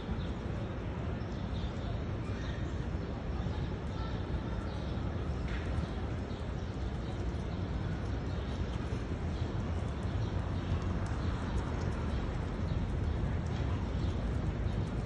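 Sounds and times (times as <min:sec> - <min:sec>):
low outdoor rumble: 0:03.4 - 0:15.0
small birds chirping: 0:03.8 - 0:15.0.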